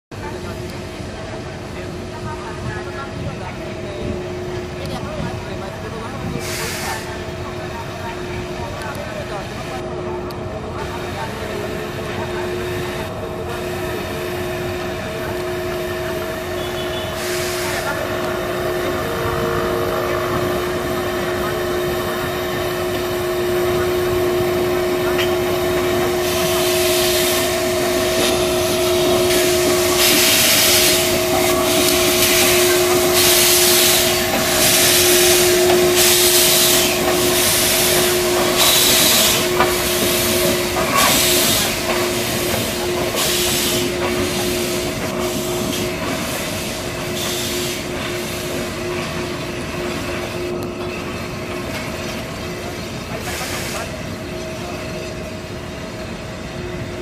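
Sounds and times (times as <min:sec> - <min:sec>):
steam locomotive exhaust chuffs: 0:04.0 - 0:57.0.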